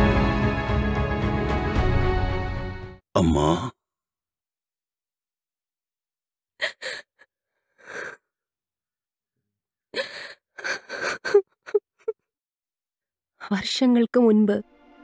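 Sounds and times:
woman sobbing: 0:06.6 - 0:07.2, 0:10.0 - 0:12.2
woman whimpering: 0:06.6 - 0:07.2, 0:10.0 - 0:12.2.

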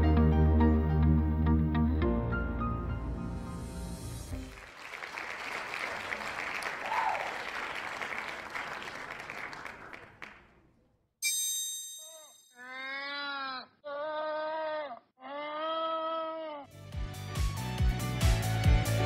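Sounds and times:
applause: 0:04.4 - 0:10.7
bright ringing chime: 0:11.2 - 0:12.6.

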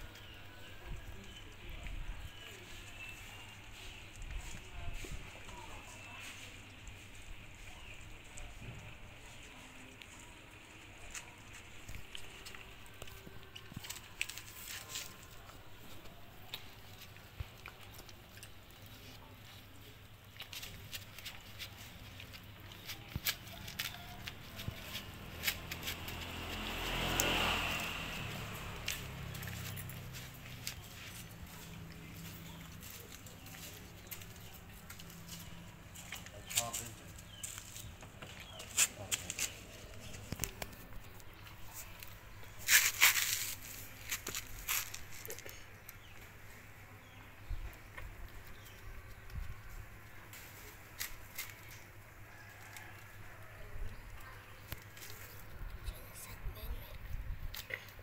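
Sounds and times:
scraping rustle: 0:09.0 - 0:46.7.

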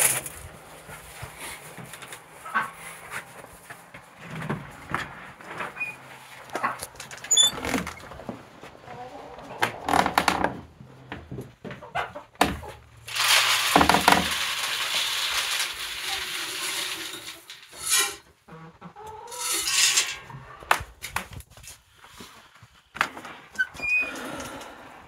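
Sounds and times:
water pouring and splashing: 0:13.0 - 0:18.1.

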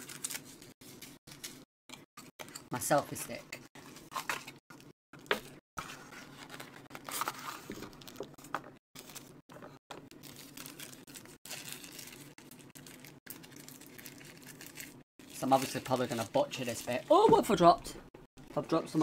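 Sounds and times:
packaging tearing: 0:00.0 - 0:01.6, 0:10.1 - 0:17.0
plastic and cardboard rustling: 0:05.2 - 0:17.8.

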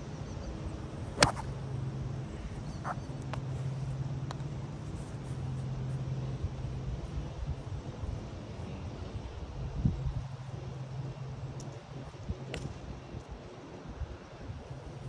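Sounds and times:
club raking ball clicks: 0:01.2 - 0:01.5
golf club striking ball: 0:01.2 - 0:01.5.

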